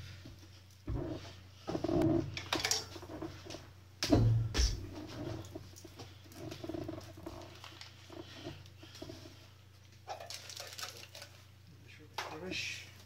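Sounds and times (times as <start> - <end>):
plastic bags crinkling: 10.1 - 11.5.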